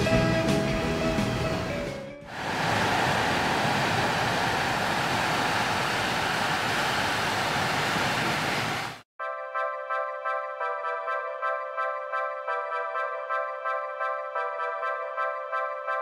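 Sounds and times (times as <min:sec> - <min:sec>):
background music: 0:00.0 - 0:02.3, 0:09.2 - 0:16.0
sea surf on rocky shore: 0:02.3 - 0:09.0.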